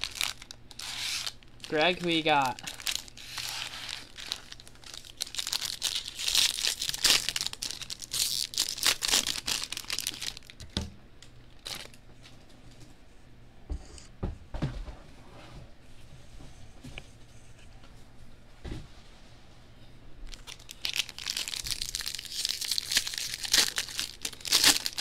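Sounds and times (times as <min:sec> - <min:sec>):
foil wrappers crinkling and tearing: 0:00.0 - 0:10.6, 0:11.5 - 0:12.0, 0:20.3 - 0:25.0.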